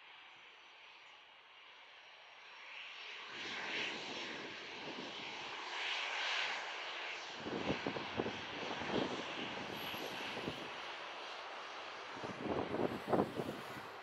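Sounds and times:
jet engines at takeoff thrust: 0.1 - 14.0
low crackle: 12.9 - 14.0.

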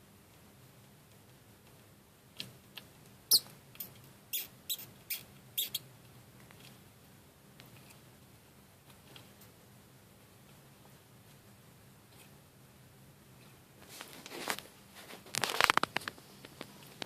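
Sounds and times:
mouse squeaking: 3.3 - 5.9.

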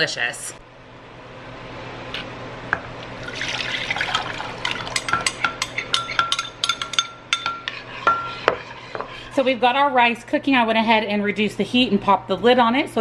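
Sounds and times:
sauce pouring into saucepan: 3.2 - 5.0
metal spoon scraping bowl: 4.9 - 9.5.

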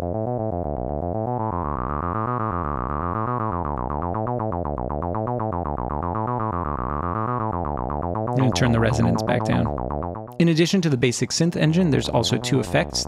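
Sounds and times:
analog bass synthesizer pattern: 0.0 - 10.1.

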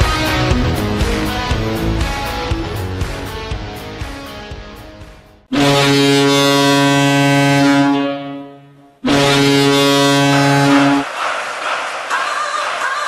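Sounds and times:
goal horn blasts: 5.5 - 11.0.

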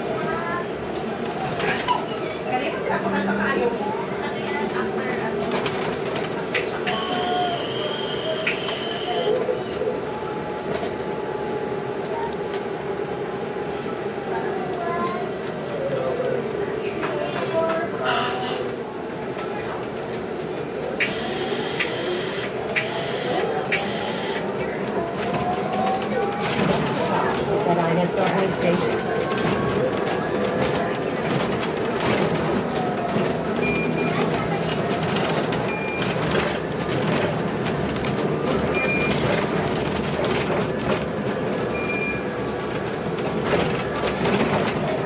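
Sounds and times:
bus engine and road noise: 0.0 - 45.0
bus brakes squealing: 6.9 - 9.9, 21.0 - 24.5.

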